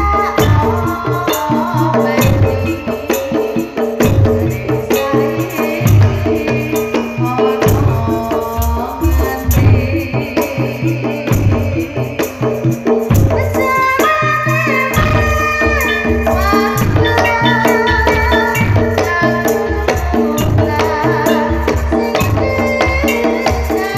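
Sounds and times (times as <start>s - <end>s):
woman singing high: 0.0s - 3.4s, 13.4s - 23.9s
low drum beats: 0.0s - 10.4s, 11.2s - 23.9s
metallophones struck with mallets: 14.9s - 23.4s.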